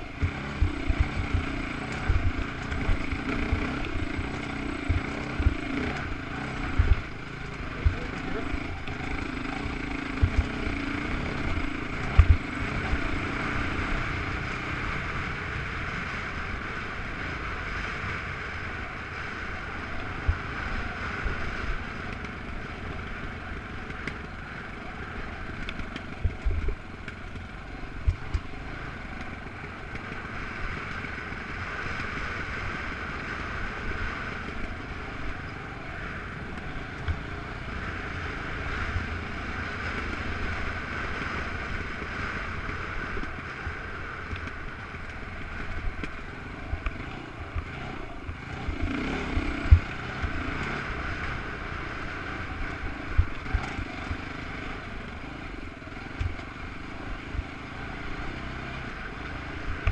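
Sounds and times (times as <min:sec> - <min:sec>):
off-road vehicle engine: 0:00.0 - 0:59.9.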